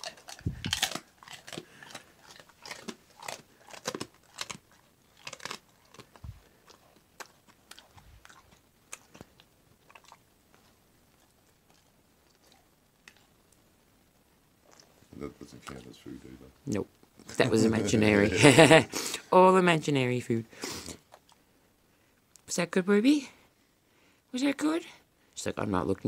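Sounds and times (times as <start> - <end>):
dog crunching a hard treat: 0.0 - 13.3.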